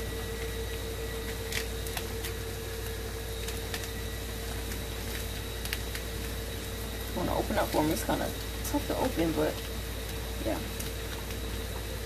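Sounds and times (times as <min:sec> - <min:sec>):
constant hum: 0:00.0 - 0:12.0
paper packet crinkling and tearing: 0:00.4 - 0:08.1.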